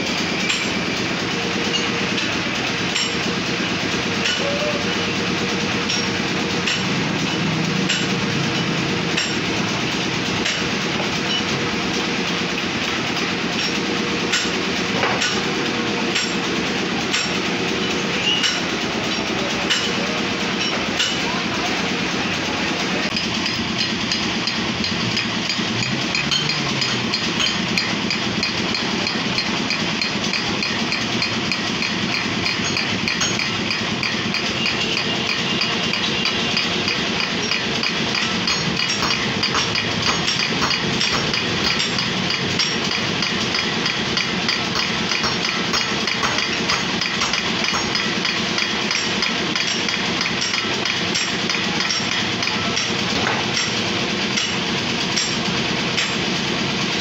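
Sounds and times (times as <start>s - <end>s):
metal lathe drone: 0.0s - 44.3s, 48.8s - 57.0s
fast ticking rattle of wheel spokes: 23.0s - 56.7s.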